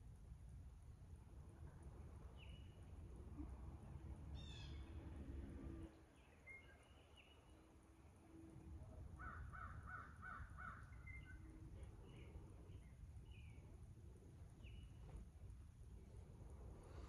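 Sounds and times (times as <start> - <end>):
faint bird calls: 4.3 - 5.0, 9.2 - 13.6.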